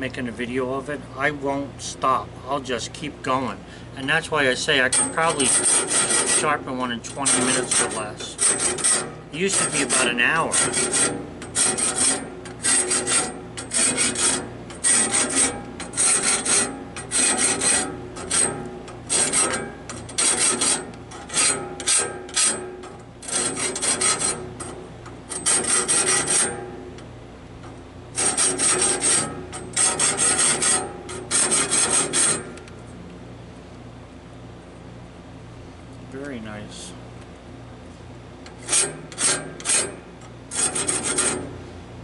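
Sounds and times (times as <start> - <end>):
hand file rasping on saw blade: 5.0 - 22.6, 23.2 - 24.7, 25.3 - 26.6, 28.2 - 32.6, 38.5 - 41.6.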